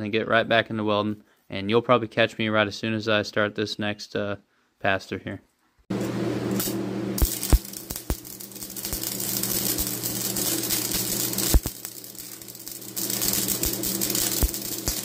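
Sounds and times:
welder humming: 0:05.9 - 0:15.0
welding arc crackling: 0:05.9 - 0:15.0.

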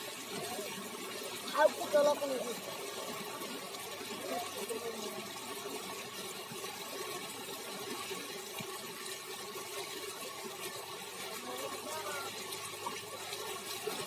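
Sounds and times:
faint water sounds: 0:00.0 - 0:14.0
faint voice: 0:11.3 - 0:12.4.

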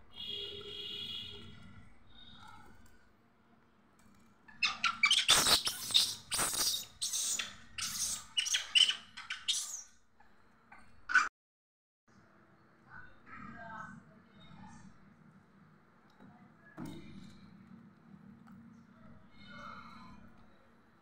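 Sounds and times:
monkeys squealing and screeching: 0:04.6 - 0:09.9.

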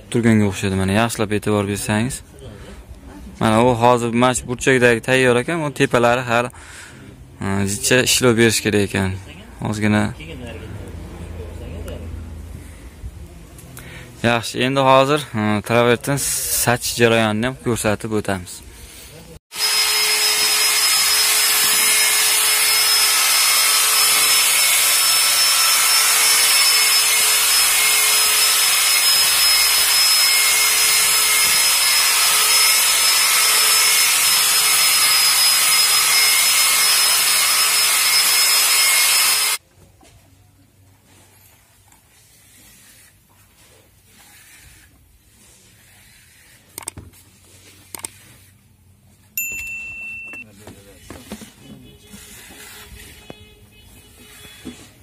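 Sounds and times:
electric drill mixer whine: 0:19.5 - 0:39.6.

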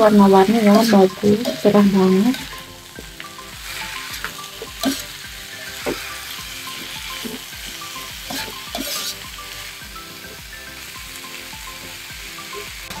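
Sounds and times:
vegetables sizzling in a wok: 0:00.0 - 0:13.0
spatula scraping metal pan: 0:03.6 - 0:07.5, 0:08.3 - 0:09.3.

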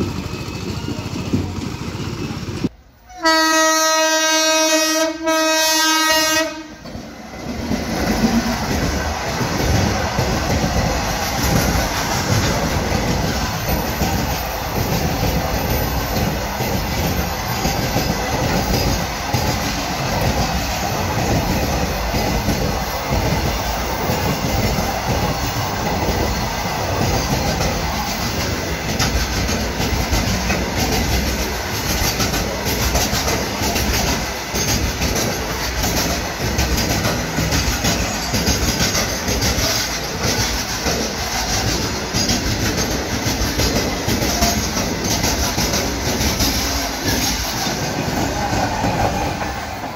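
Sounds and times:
freight train wheels rumbling: 0:00.0 - 0:49.9.

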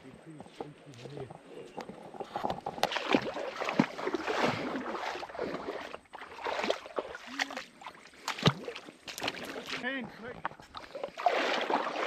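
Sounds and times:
footsteps and rustling: 0:00.0 - 0:06.0
water splashing: 0:00.6 - 0:12.0.

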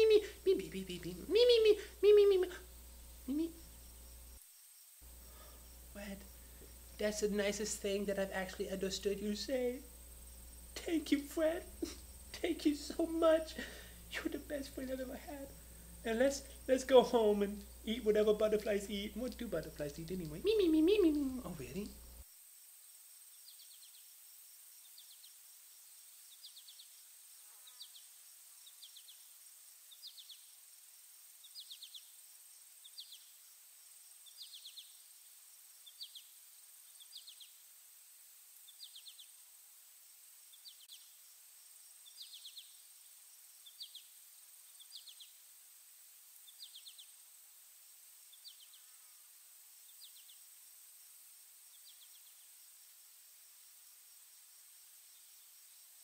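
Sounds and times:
thin high-pitched hum: 0:00.0 - 0:04.4
insects chirping: 0:00.0 - 0:56.0.

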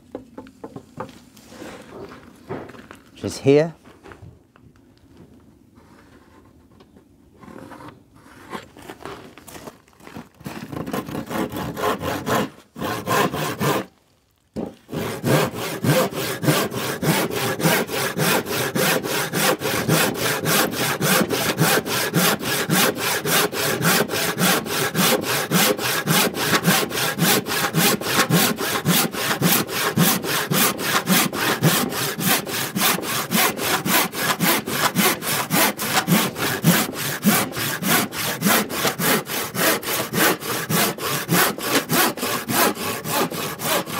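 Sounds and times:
hand saw cutting wood: 0:10.4 - 0:13.9, 0:14.6 - 0:43.9.

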